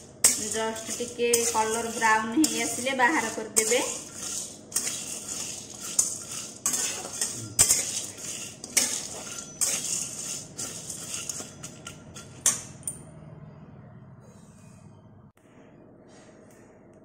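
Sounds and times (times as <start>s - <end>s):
grains rattling in pan: 0.0s - 12.7s
metal spatula scraping pan: 0.0s - 12.9s.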